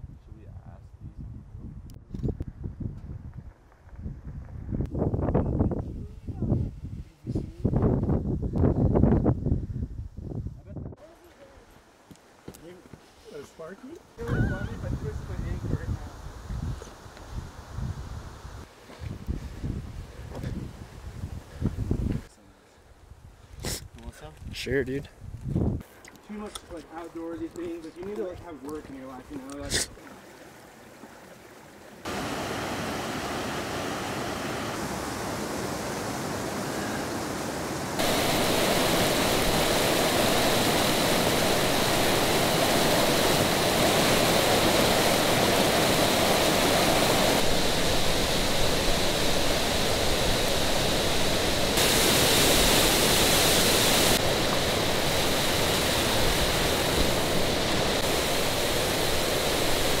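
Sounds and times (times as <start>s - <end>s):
rushing mountain stream: 26.9s - 60.0s.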